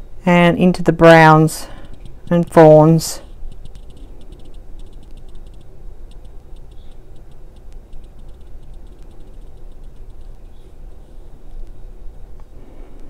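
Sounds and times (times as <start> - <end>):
low steady hum: 0.0 - 13.0
light clicks and ticks: 3.2 - 10.8.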